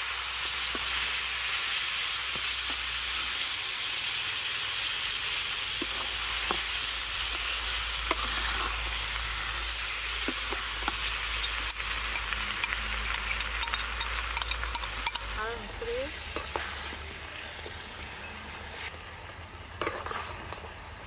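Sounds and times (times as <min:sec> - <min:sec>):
food sizzling in a wok: 0:00.0 - 0:21.0
metal spatula scraping pan: 0:05.8 - 0:17.0, 0:19.8 - 0:20.7.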